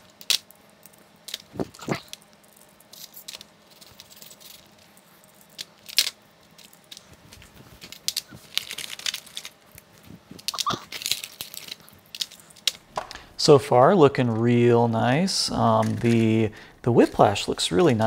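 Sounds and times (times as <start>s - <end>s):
plastic toy robots clicking and rattling: 0.1s - 7.0s, 7.8s - 9.6s, 10.3s - 12.8s, 15.5s - 16.4s.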